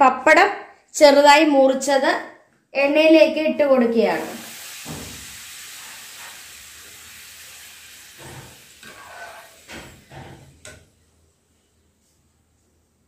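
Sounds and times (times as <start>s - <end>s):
food sizzling in hot oil: 4.1s - 10.4s
knocks and scrapes in pan: 8.2s - 10.8s.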